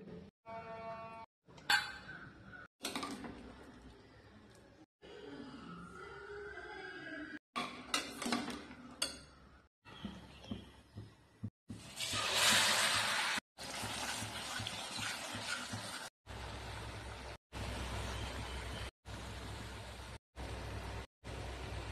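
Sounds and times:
puree sizzling in hot oil: 0:11.7 - 0:16.1.

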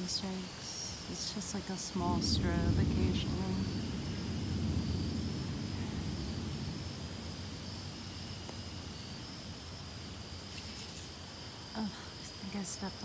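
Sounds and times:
insects chirring: 0:00.0 - 0:13.0
distant thunder rumbling: 0:01.0 - 0:10.5.

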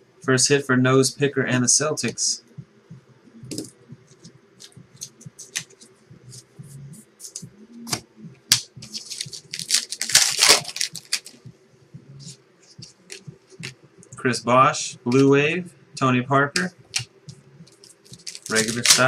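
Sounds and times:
card pack wrapper crinkling: 0:08.8 - 0:11.4, 0:17.8 - 0:19.0
wrapper tearing and rustling: 0:08.9 - 0:11.4, 0:18.0 - 0:19.0.

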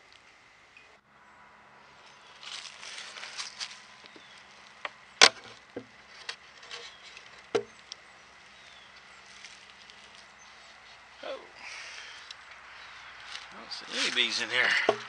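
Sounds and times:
wooden cover cracking loose: 0:05.2 - 0:07.7
wooden knocks: 0:07.5 - 0:07.7, 0:14.7 - 0:15.0.

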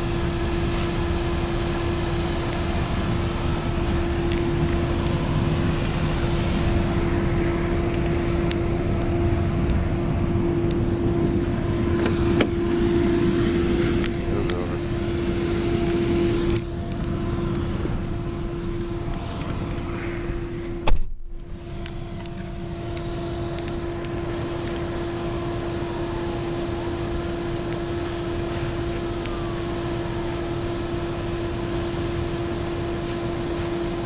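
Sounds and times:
car engine and road hum: 0:00.0 - 0:34.0
sharp thump: 0:20.8 - 0:21.4.

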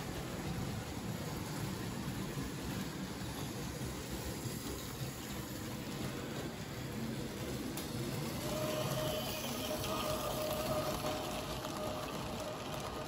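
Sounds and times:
model train wheels on track: 0:00.0 - 0:13.0.

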